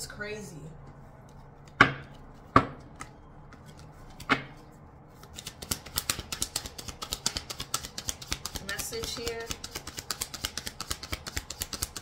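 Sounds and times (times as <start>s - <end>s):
cards shuffling clicks: 1.2s - 12.0s
sharp knocks on a table: 1.8s - 2.8s.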